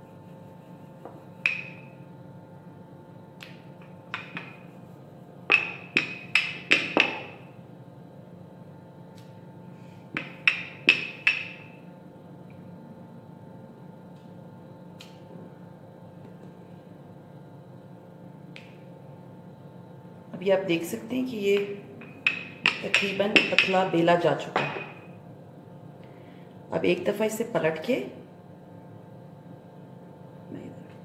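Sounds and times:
rolling pin knocking on countertop: 0:04.1 - 0:04.6, 0:05.5 - 0:07.4, 0:21.6 - 0:23.8.

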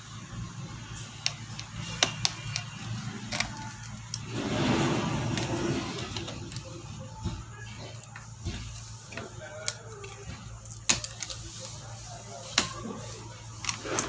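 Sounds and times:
screwdriver and screws clicking: 0:01.2 - 0:04.3.

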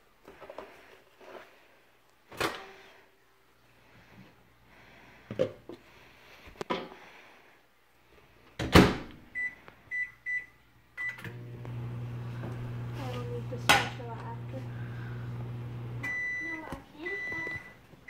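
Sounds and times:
microwave humming: 0:11.0 - 0:17.9
short keypad beeps: 0:16.0 - 0:17.8.

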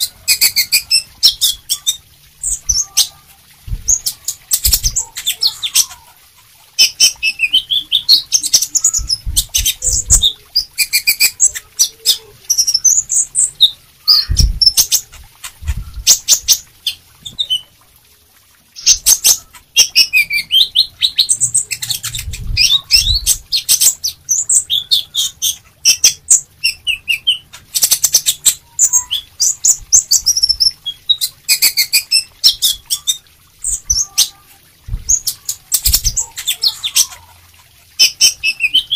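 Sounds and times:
bird twittering and trilling: 0:00.0 - 0:06.2, 0:06.8 - 0:17.7, 0:18.8 - 0:37.4, 0:38.0 - 0:38.9
low thumps: 0:03.6 - 0:05.0, 0:34.9 - 0:35.3.

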